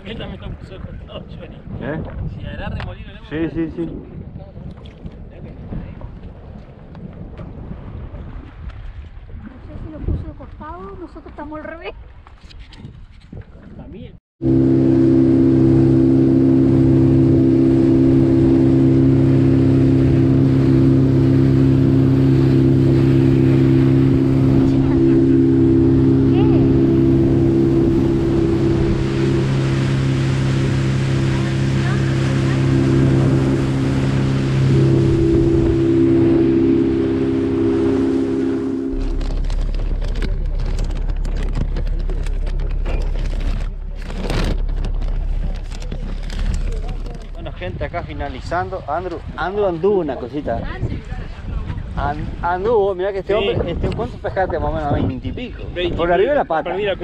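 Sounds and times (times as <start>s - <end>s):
wind and water rushing: 0.0s - 12.3s, 14.4s - 57.0s
motorboat engine droning: 14.4s - 57.0s
steady low rumble: 14.4s - 57.0s.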